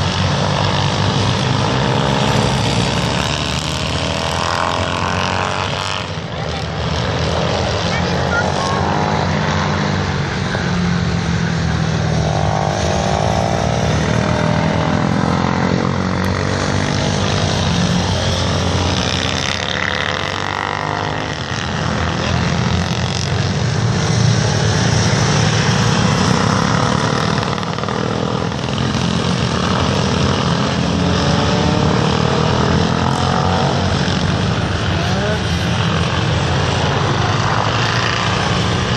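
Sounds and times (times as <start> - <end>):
racing motorcycle engines: 0.0 - 38.9.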